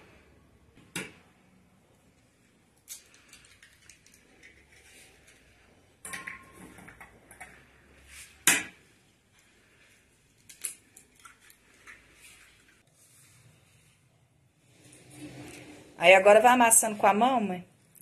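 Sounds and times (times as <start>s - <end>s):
eggs cracking on metal bowl: 6.0s - 7.6s.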